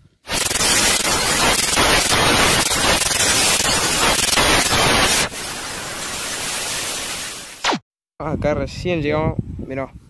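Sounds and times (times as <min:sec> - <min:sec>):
tv static hiss: 0:00.3 - 0:07.8.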